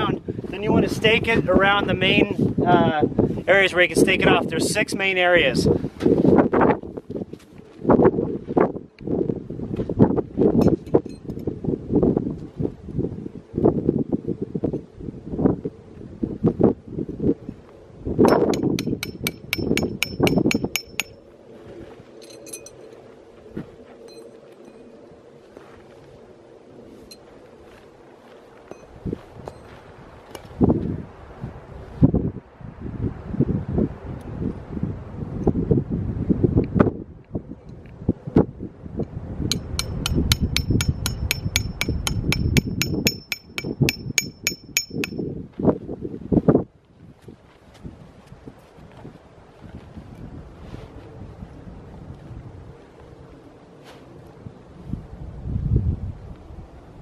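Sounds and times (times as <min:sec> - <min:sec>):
hammer striking metal stake: 0:18.3 - 0:21.2, 0:39.5 - 0:45.2
faint metallic clinks: 0:22.2 - 0:23.0, 0:42.5 - 0:45.2.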